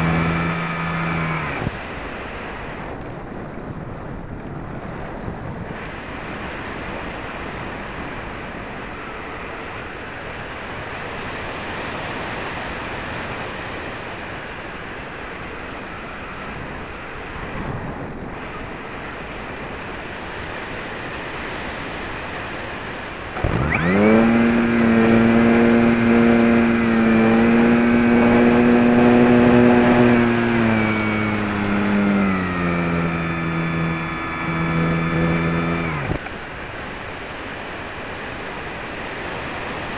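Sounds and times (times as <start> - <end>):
electric motor and propeller whine: 0.0 - 39.9
wind rushing over microphone: 1.3 - 10.1, 15.5 - 21.3.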